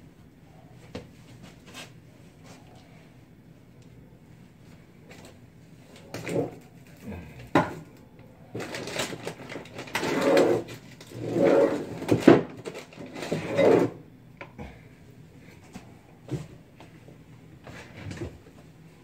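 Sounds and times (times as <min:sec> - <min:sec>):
packaging rustling: 0:08.5 - 0:11.1.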